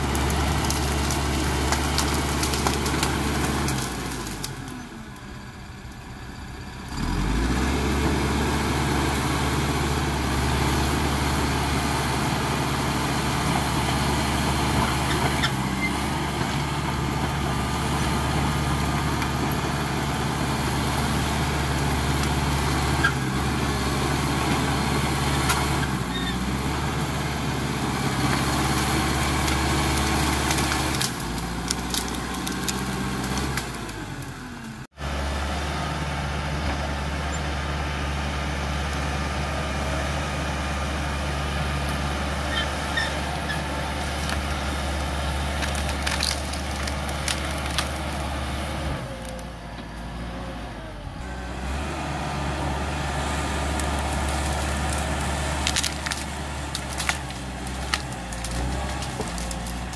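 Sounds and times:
diesel engine running under load: 0:00.0 - 0:59.9
sharp cracks and knocks: 0:00.1 - 0:04.6, 0:29.3 - 0:34.3, 0:45.5 - 0:48.2, 0:53.8 - 0:59.9.

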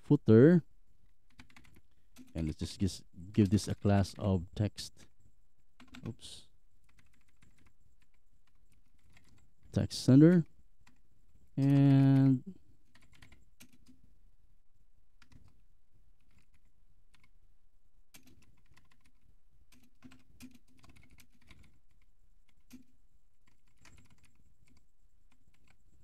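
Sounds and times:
computer keyboard typing: 0:01.2 - 0:04.3, 0:05.8 - 0:11.0, 0:11.6 - 0:14.0, 0:15.2 - 0:15.6, 0:16.2 - 0:17.4, 0:18.1 - 0:26.0.

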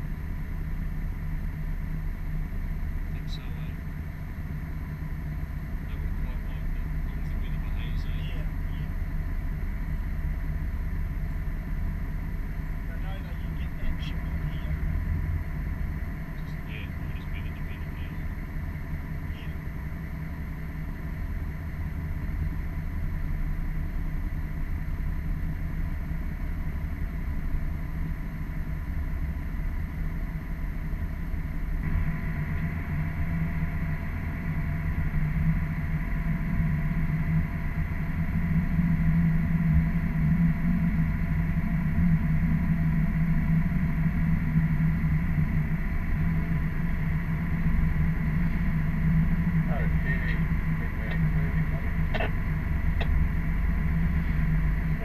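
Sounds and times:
boat engines droning: 0:00.0 - 0:55.0.

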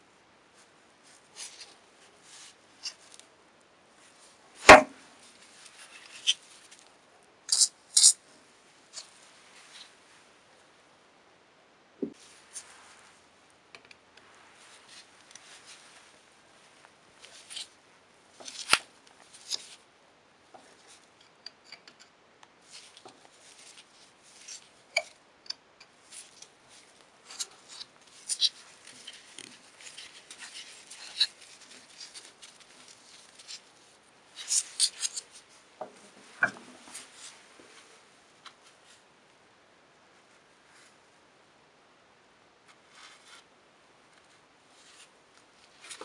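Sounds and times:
metal screw clicking and scraping: 0:07.5 - 0:08.2, 0:21.2 - 0:22.2, 0:27.3 - 0:33.7, 0:34.4 - 0:35.3.

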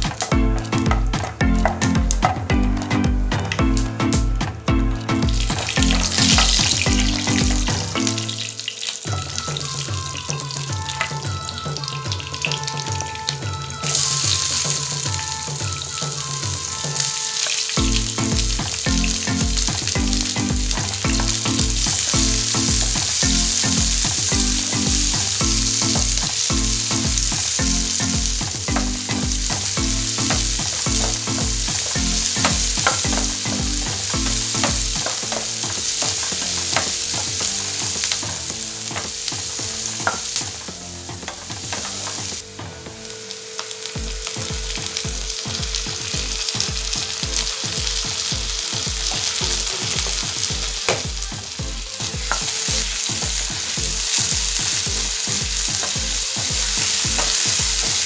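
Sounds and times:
onions sizzling in oil: 0:04.5 - 0:58.0
wooden spatula stirring: 0:20.8 - 0:42.4.

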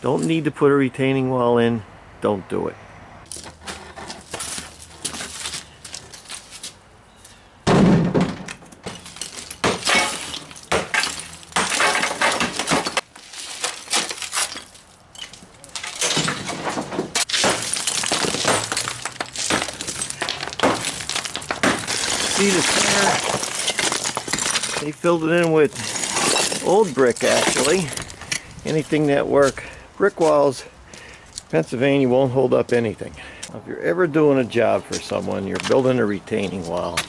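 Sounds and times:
bricks cracking and clattering down: 0:07.7 - 0:28.3.

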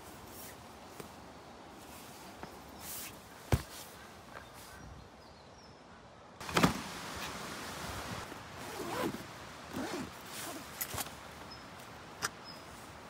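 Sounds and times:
backpack thump: 0:03.5 - 0:03.8
zipper being pulled open: 0:08.6 - 0:11.1
fabric rustling: 0:08.6 - 0:11.4.

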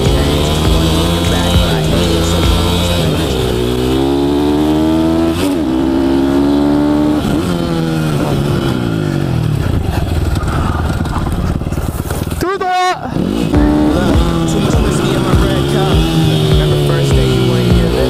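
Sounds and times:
motorbike engine accelerating: 0:00.0 - 0:18.0.

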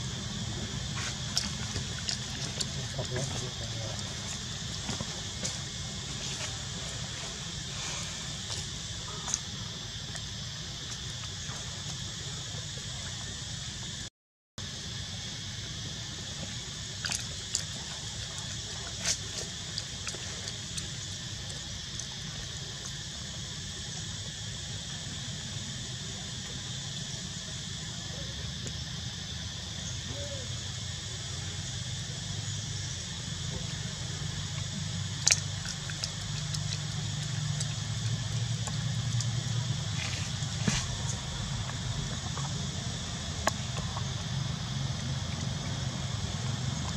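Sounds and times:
high hiss: 0:00.0 - 0:46.9.

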